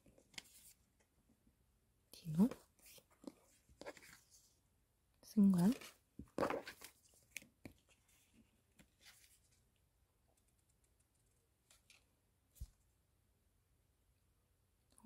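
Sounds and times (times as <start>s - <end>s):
paper pages rustling: 0.1s - 0.8s, 2.5s - 4.5s, 5.7s - 9.6s.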